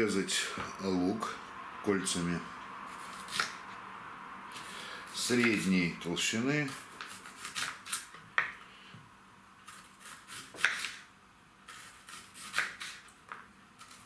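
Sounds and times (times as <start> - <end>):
knife slicing onion: 2.9 - 3.6, 4.5 - 5.7, 6.6 - 8.6, 9.6 - 13.2, 13.8 - 14.0.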